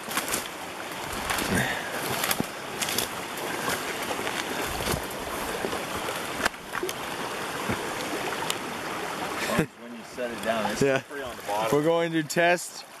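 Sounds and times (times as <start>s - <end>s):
footsteps crunching in snow: 0.0s - 6.4s.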